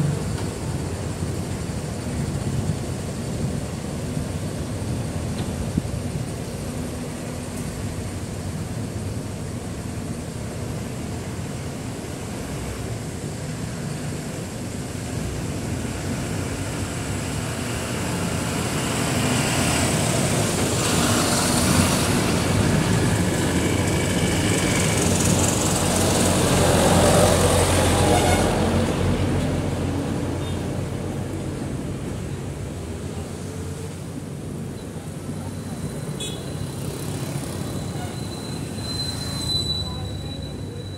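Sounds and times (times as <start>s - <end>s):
bus driving past: 0.0s - 40.9s
cars passing: 15.2s - 40.9s.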